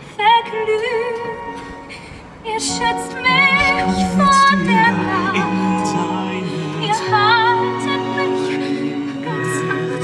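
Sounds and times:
woman singing with vibrato: 2.4s - 10.0s
orchestral chords: 2.7s - 10.0s.

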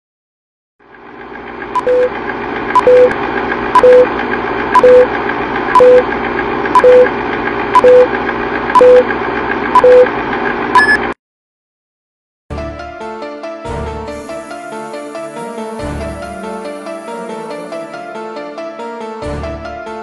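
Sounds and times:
higher beep: 1.8s - 2.1s, 2.8s - 3.2s, 3.8s - 4.1s, 4.8s - 5.1s, 5.8s - 6.0s, 6.8s - 7.1s, 7.8s - 8.1s, 8.8s - 9.1s, 9.8s - 10.1s, 10.8s - 11.1s
short low beeps: 1.8s - 2.1s, 2.8s - 3.2s, 3.8s - 4.1s, 4.8s - 5.1s, 5.8s - 6.1s, 6.8s - 7.1s, 7.8s - 8.1s, 8.8s - 9.1s, 9.8s - 10.1s, 10.8s - 11.2s.

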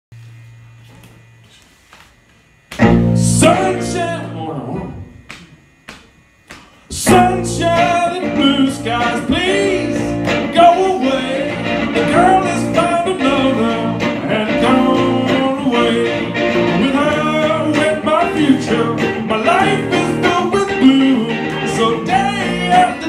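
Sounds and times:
electric guitars strumming: 2.7s - 5.9s, 6.6s - 23.0s
man singing: 3.2s - 5.0s, 6.9s - 23.0s.

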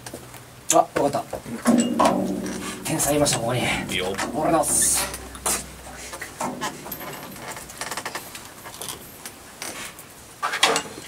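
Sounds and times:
sharp knocks: 1.5s - 8.8s
metal hardware clicking and rattling: 1.6s - 9.8s.

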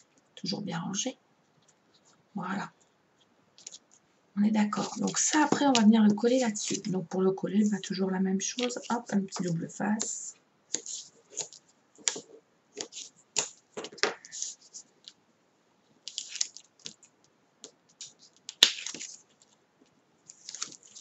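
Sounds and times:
tape crackling and tearing: 16.1s - 17.1s, 18.0s - 19.6s, 20.3s - 21.0s.

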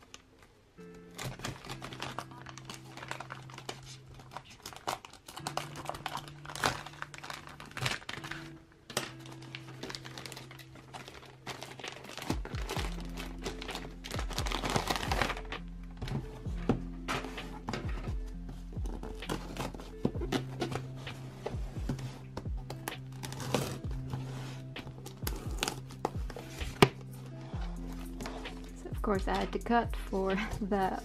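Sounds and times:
plastic wrap crinkling and tearing: 0.0s - 16.4s, 18.7s - 28.9s
soft background music: 0.0s - 31.0s.

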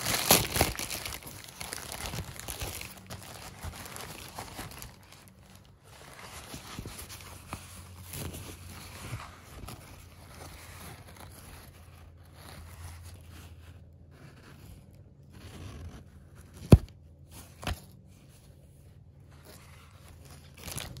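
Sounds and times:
toilet paper rustling: 0.0s - 13.3s.

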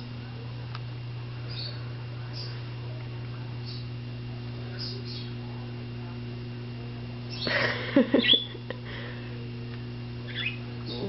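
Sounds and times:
electrical hum: 0.0s - 11.0s
parrots squawking and chattering: 8.2s - 8.5s, 10.3s - 11.0s
high bird chirp: 8.2s - 8.6s, 10.3s - 10.7s.

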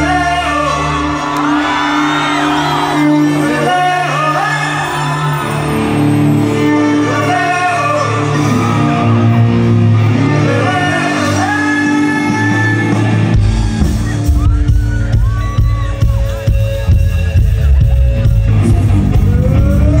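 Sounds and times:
person singing: 0.0s - 5.6s, 6.2s - 9.2s, 9.9s - 14.5s, 17.7s - 20.0s
shouts: 0.0s - 16.4s
live band music: 0.0s - 20.0s
heavy low beat: 13.1s - 20.0s.

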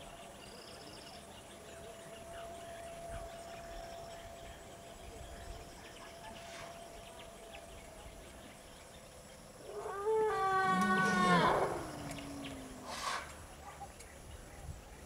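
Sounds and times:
elephant trumpeting: 9.7s - 13.4s.

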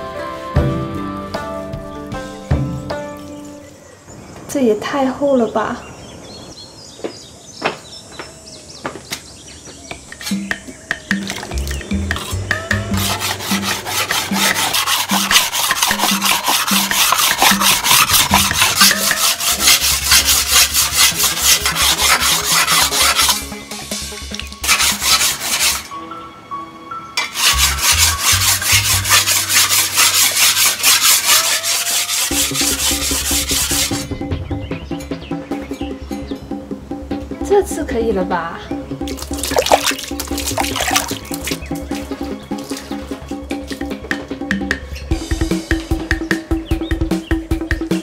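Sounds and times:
soft background music: 0.0s - 5.7s, 9.7s - 31.4s, 32.3s - 48.0s
knife grinding on whetstone: 10.1s - 10.6s, 11.3s - 23.6s, 24.6s - 25.9s, 27.2s - 34.1s.

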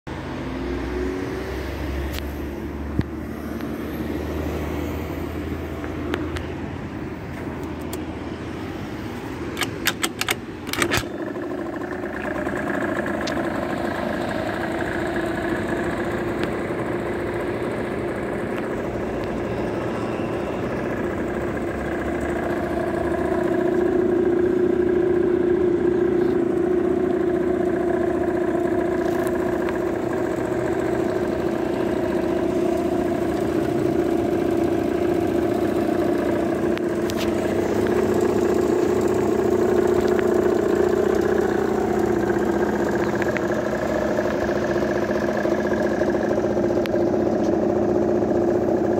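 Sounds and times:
two-stroke scooter engine idling: 2.1s - 48.9s
engine starter clicks: 7.5s - 8.1s, 9.4s - 15.4s.

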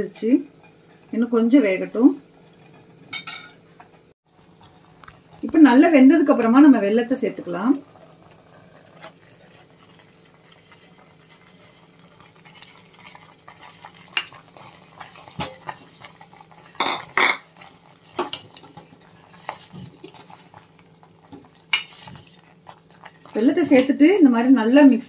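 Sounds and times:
ladle knocking and scraping a pot: 13.6s - 20.5s, 21.3s - 23.9s.

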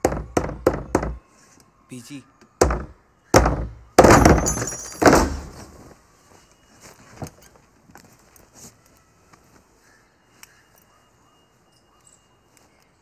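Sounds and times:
heavy pounding on wooden door: 0.0s - 1.2s, 2.6s - 5.6s.

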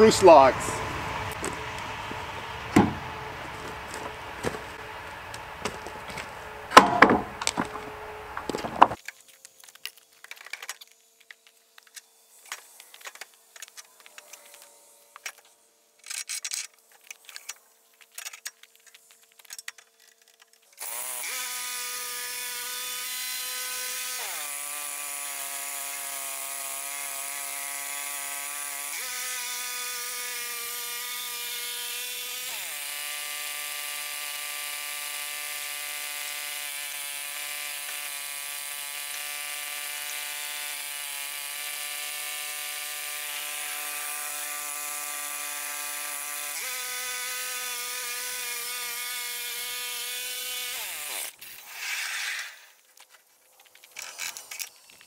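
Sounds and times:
band saw cutting log: 0.0s - 9.0s, 20.8s - 52.8s
gas engine running: 0.0s - 9.0s.

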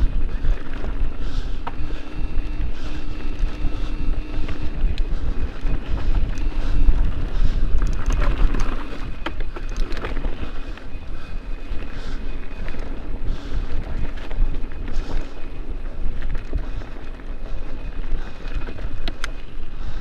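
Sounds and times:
bike rattling: 0.0s - 20.0s
bike tyre noise: 0.0s - 20.0s
wind buffeting microphone: 0.0s - 20.0s
clicks and clatters: 7.7s - 10.9s, 18.2s - 19.4s.

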